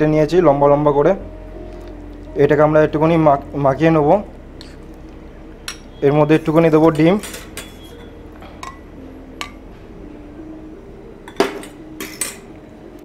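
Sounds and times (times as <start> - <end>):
spoon clinking against bowl: 5.6 - 6.0, 6.9 - 9.6.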